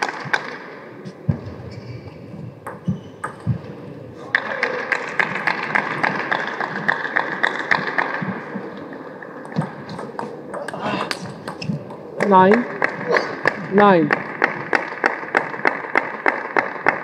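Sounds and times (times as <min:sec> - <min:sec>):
table tennis ball bouncing: 0:02.6 - 0:08.4, 0:09.2 - 0:17.0.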